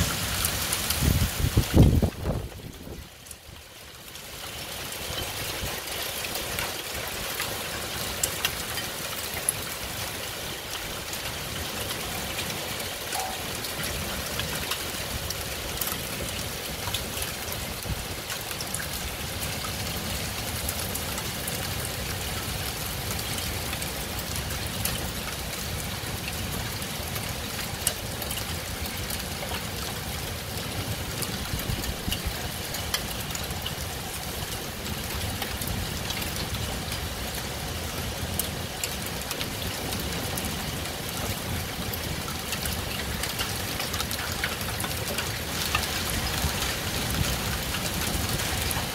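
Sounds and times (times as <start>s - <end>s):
heavy rain hissing: 0.0s - 3.0s.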